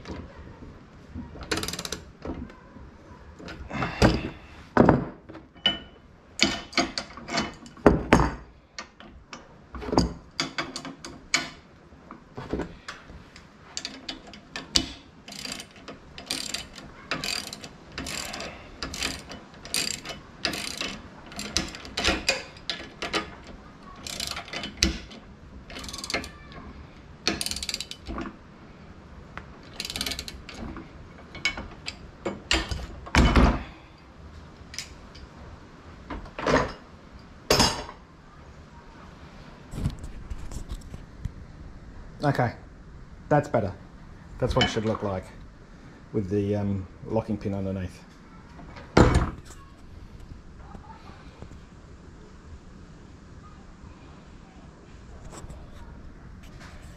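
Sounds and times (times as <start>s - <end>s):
ratchet wrench clicking: 1.5s - 2.0s, 13.8s - 23.3s, 24.0s - 25.1s, 25.7s - 26.4s, 27.3s - 28.1s, 29.7s - 30.6s.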